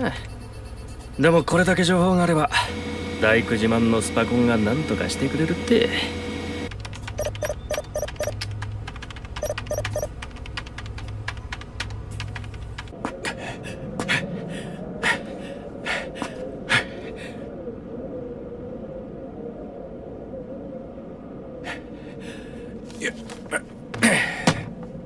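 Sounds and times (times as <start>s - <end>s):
wavering electronic drone: 0.0s - 6.7s
low hum: 0.0s - 25.0s
rapid patter of clicks: 6.7s - 13.0s
short electronic beeps: 7.2s - 8.4s, 9.4s - 10.1s.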